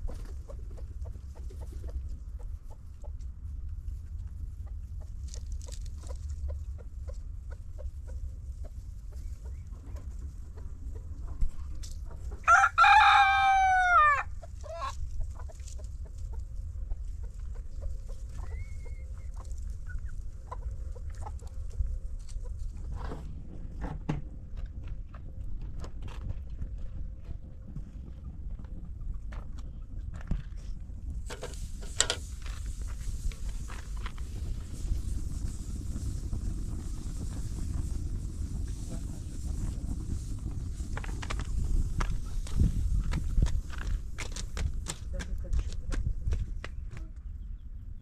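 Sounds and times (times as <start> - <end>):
low steady rumble: 0.0 - 48.0
rooster crowing: 12.4 - 14.3.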